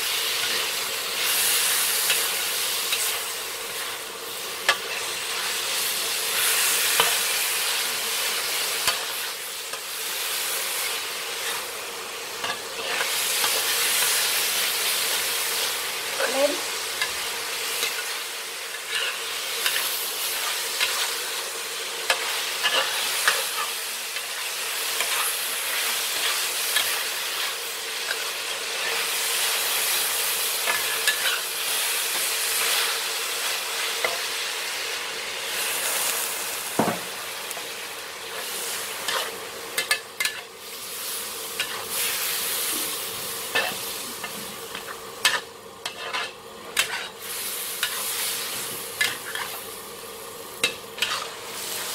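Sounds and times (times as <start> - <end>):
chicken sizzling in a wok: 0.0 - 51.9
metal spatula scraping a pan: 18.7 - 21.2, 22.1 - 24.4, 39.0 - 40.5, 43.5 - 49.6, 50.6 - 51.9.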